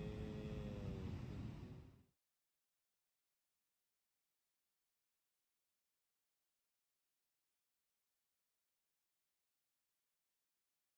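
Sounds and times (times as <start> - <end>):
wind and surf rumble: 0.0 - 2.0.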